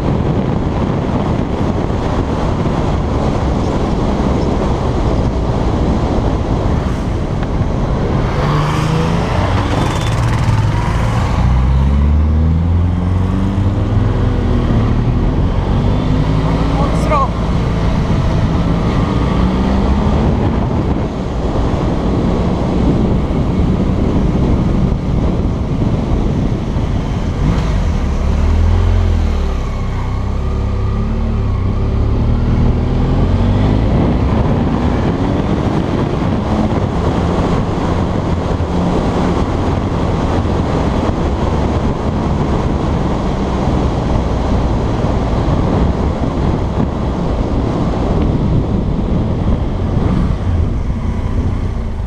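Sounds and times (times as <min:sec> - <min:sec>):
wind rushing over microphone: 0:00.0 - 0:52.0
motorcycle engine running: 0:09.4 - 0:11.1.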